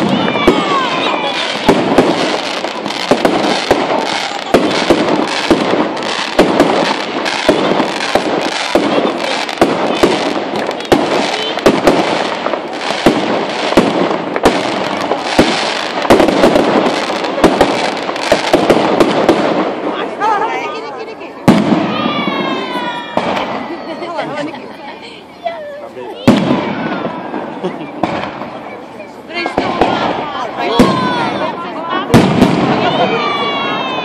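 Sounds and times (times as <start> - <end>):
firework shells bursting: 0.0 - 19.9
firework crackling: 0.0 - 34.0.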